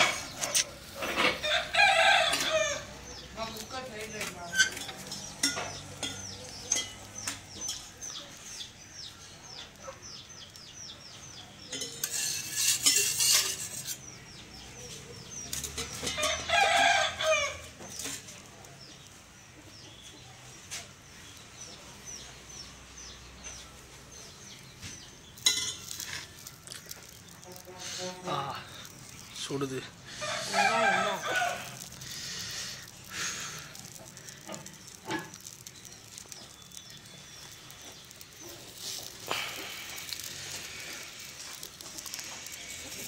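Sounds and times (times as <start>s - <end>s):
spatula scraping hissing griddle: 0.0s - 8.7s, 11.0s - 17.0s, 24.0s - 43.0s
rooster crowing: 1.2s - 3.0s, 16.1s - 17.7s, 30.2s - 31.9s.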